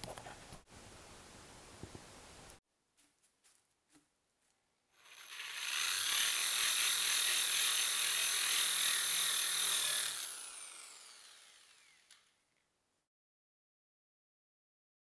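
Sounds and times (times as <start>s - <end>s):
electric drill with hole saw: 5.0s - 12.4s.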